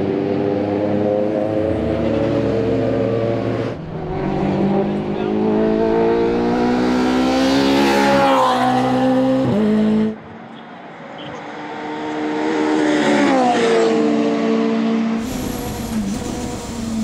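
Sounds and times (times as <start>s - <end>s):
race car engine passing: 0.0s - 10.2s.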